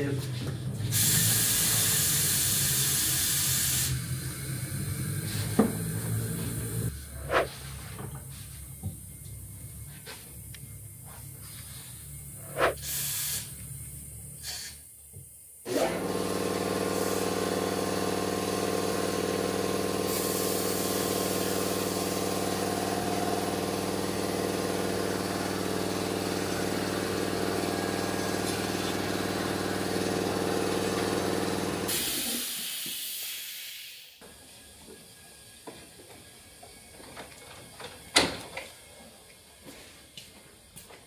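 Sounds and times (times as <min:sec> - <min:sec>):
loud air hiss: 0:00.9 - 0:07.5, 0:11.4 - 0:13.6, 0:14.4 - 0:14.9, 0:19.9 - 0:23.8, 0:31.4 - 0:34.2
electric motor humming: 0:18.9 - 0:31.9.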